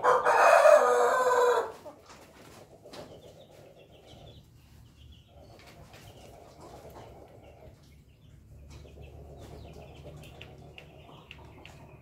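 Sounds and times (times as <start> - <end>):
chickens clucking softly: 0.0 - 12.0.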